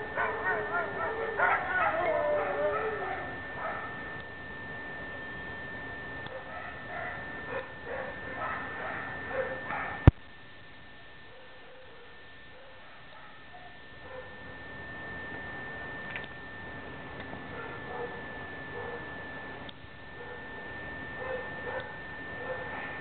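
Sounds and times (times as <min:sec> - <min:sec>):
dogs barking: 0:00.0 - 0:04.0, 0:06.3 - 0:10.1, 0:11.3 - 0:14.4, 0:17.5 - 0:19.1, 0:20.2 - 0:20.5, 0:21.2 - 0:23.0
steady high-pitched whine: 0:00.0 - 0:23.0.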